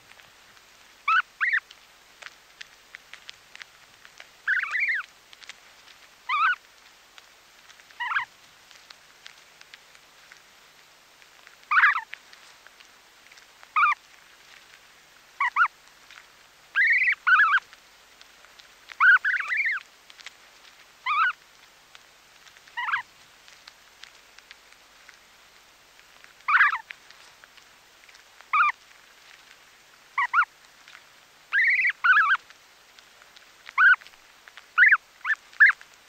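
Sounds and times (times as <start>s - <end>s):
goslings calling: 1.0s - 1.6s, 4.5s - 5.1s, 6.3s - 6.6s, 8.0s - 8.3s, 11.7s - 12.1s, 13.8s - 14.0s, 15.4s - 15.7s, 16.8s - 17.6s, 19.0s - 19.8s, 21.0s - 21.4s, 22.8s - 23.0s, 26.5s - 26.8s, 28.5s - 28.8s, 30.2s - 30.5s, 31.5s - 32.4s, 33.7s - 34.1s, 34.8s - 35.8s.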